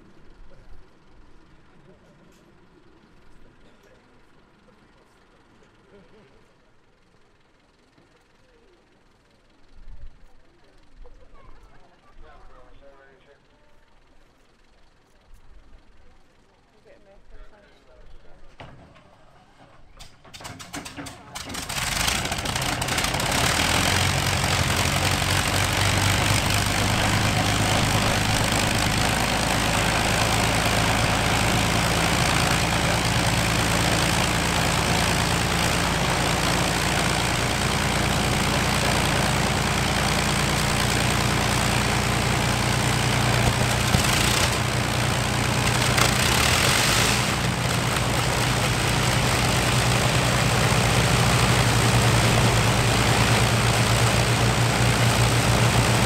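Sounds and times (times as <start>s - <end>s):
engine starting: 20.0s - 23.2s
aircraft piston engines running: 20.0s - 56.0s.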